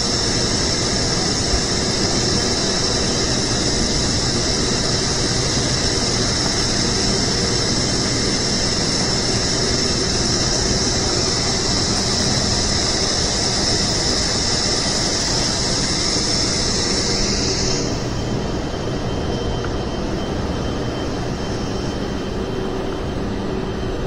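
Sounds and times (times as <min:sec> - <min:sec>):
strong hiss: 0:00.0 - 0:19.1.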